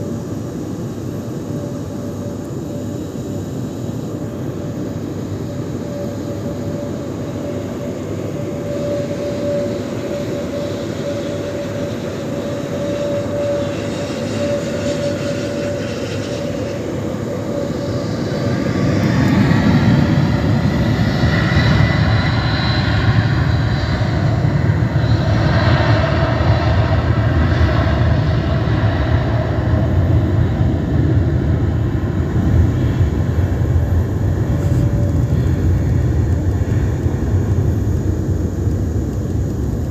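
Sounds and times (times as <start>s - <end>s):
jet engines roaring: 0.0s - 39.9s.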